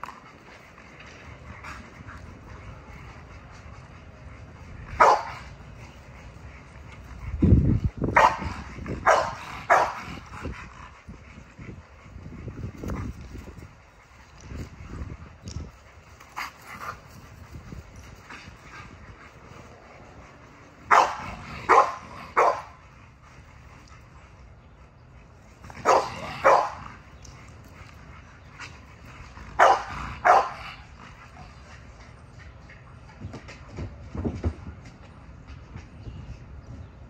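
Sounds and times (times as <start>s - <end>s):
dog barking: 5.0s - 5.4s, 9.0s - 10.0s, 20.9s - 22.7s, 25.9s - 26.8s, 29.6s - 30.6s.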